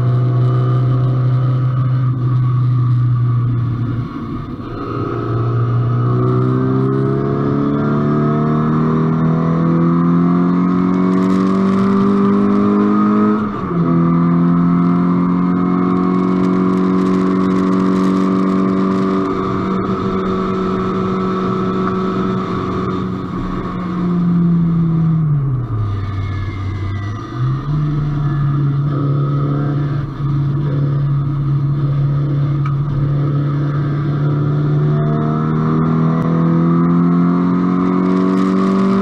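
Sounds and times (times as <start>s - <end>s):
race car engine accelerating: 0.0s - 39.0s.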